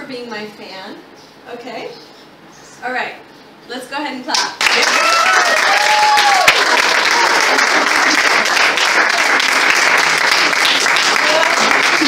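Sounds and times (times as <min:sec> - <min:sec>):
people clapping: 0:04.3 - 0:12.0.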